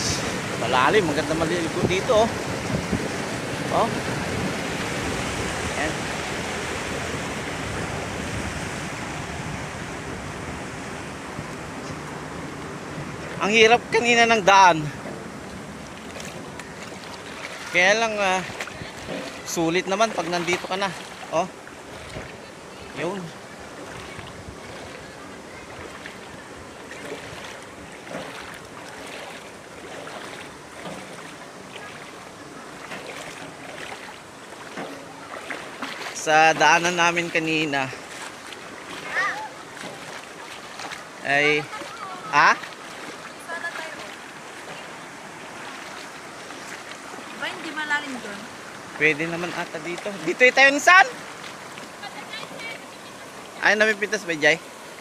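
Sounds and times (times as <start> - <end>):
wind rumbling on microphone: 0.0 - 14.0, 18.4 - 19.5, 21.0 - 30.7
river flowing over stones: 0.0 - 55.0.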